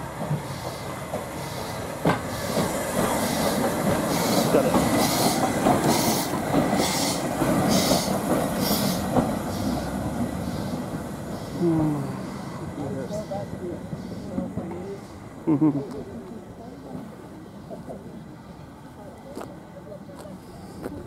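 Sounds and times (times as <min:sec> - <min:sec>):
steam locomotive exhaust chuffing: 0:00.0 - 0:15.4
wheels rumbling and clanking on rails: 0:00.0 - 0:21.0.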